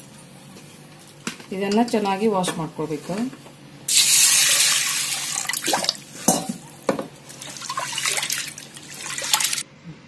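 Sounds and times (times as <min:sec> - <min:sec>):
water swishing and splashing: 0:07.3 - 0:09.6.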